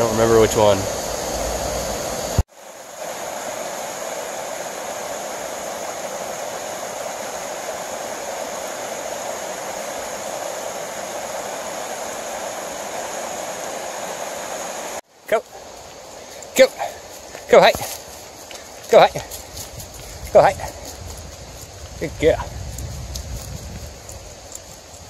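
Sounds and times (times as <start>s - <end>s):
river water rushing over rapids: 0.5s - 19.5s.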